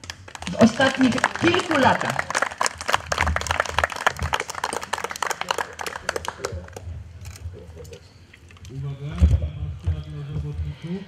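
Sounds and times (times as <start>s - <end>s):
crowd clapping: 0.0s - 6.9s.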